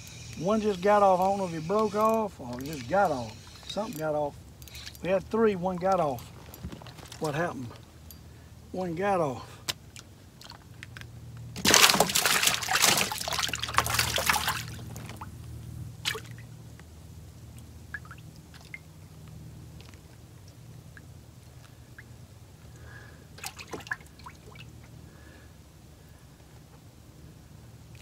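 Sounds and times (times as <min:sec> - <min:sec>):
water splashing: 0:11.6 - 0:15.3, 0:16.0 - 0:16.5, 0:23.4 - 0:24.8
water dripping: 0:17.5 - 0:25.0.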